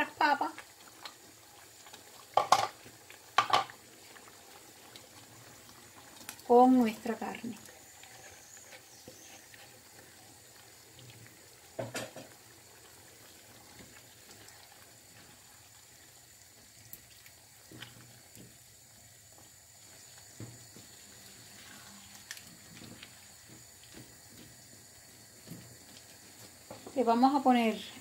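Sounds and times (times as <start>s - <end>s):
stew bubbling faintly: 0.0s - 28.0s
spatula knocking and scraping pan: 2.4s - 2.8s, 3.4s - 3.7s.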